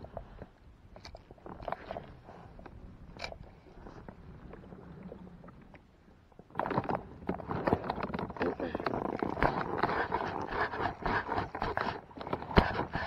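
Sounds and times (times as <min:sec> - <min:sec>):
jumble of sound: 0:06.6 - 0:13.0.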